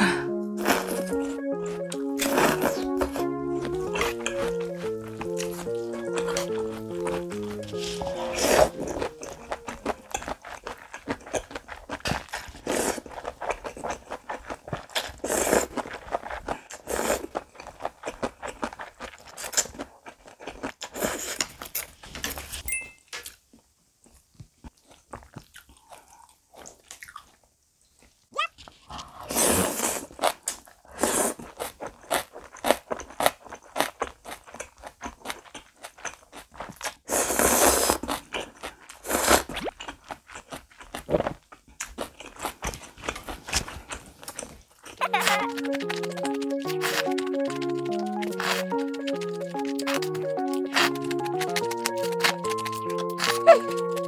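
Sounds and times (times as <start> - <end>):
slurping noodles: 0.0 - 1.2, 1.8 - 19.8, 28.8 - 34.0, 37.0 - 39.8, 42.3 - 54.0
chewing and crunching food: 0.6 - 22.6, 23.2 - 54.0.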